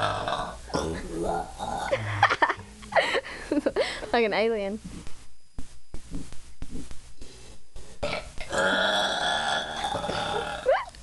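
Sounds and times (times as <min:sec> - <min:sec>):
person burping: 0:00.0 - 0:02.4, 0:08.0 - 0:11.0.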